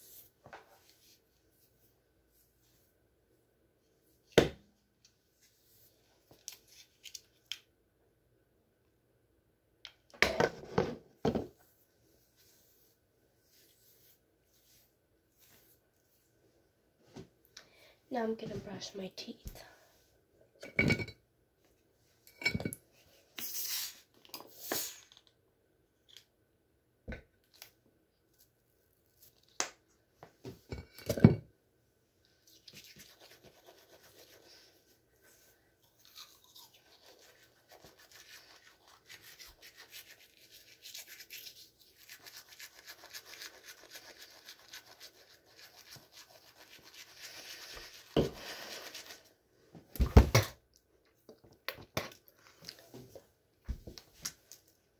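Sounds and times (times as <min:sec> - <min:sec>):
toothbrush scrubbing teeth: 0:32.4 - 0:49.3.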